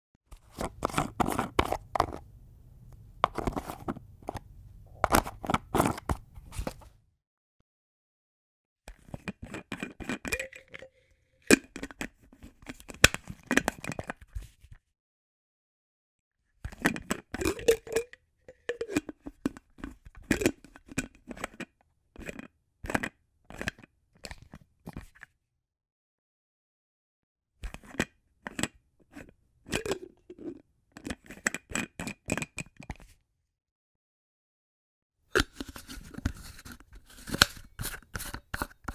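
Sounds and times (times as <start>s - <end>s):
container lid clicks and scrapes: 0.3s - 2.3s, 2.9s - 6.9s, 8.9s - 14.8s, 16.7s - 25.3s, 27.6s - 33.2s, 35.3s - 38.9s
lid snapping: 35.4s - 38.9s.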